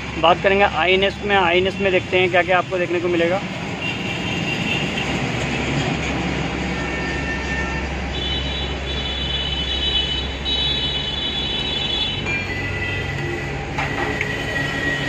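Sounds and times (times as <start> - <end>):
low rumbling background noise: 0.0 - 4.2.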